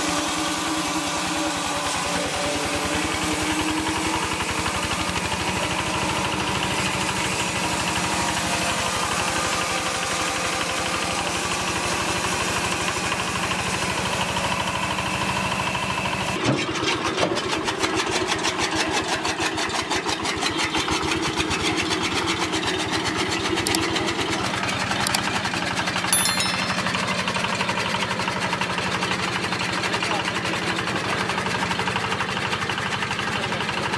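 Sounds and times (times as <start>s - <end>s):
small diesel engine running: 0.0s - 16.4s, 28.8s - 33.9s.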